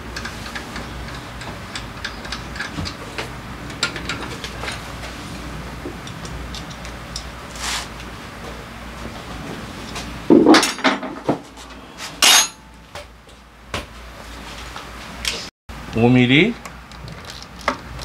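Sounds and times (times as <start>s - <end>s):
metal tools clattering on steel: 10.5s - 11.4s, 12.2s - 12.7s
sharp metal clanks: 12.2s - 12.8s.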